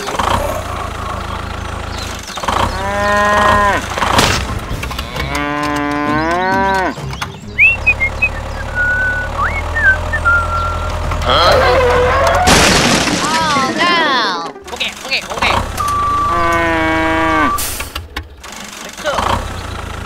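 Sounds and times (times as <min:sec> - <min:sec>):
cow mooing: 0:02.6 - 0:04.0, 0:05.0 - 0:07.0, 0:16.0 - 0:17.7
high whistled chirps: 0:07.6 - 0:10.9.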